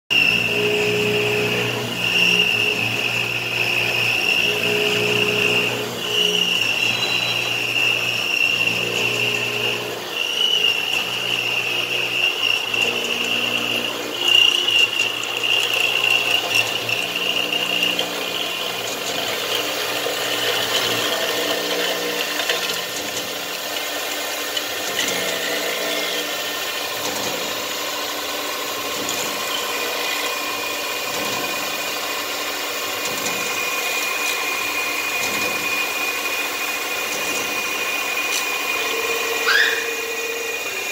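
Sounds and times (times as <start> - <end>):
milling machine cutting metal: 0.1 - 40.9.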